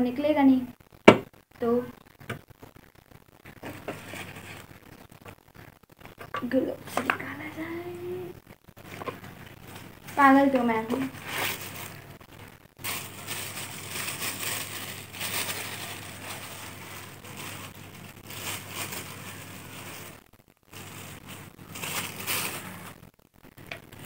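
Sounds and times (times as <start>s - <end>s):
cardboard and plastic crinkling: 3.5s - 4.8s, 8.8s - 12.0s, 12.8s - 23.0s.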